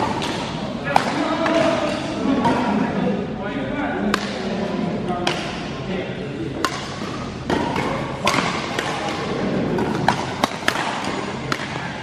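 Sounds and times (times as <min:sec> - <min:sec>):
sports hall background noise: 0:00.0 - 0:12.0
badminton racket hitting shuttlecock: 0:06.6 - 0:09.2, 0:09.8 - 0:11.8.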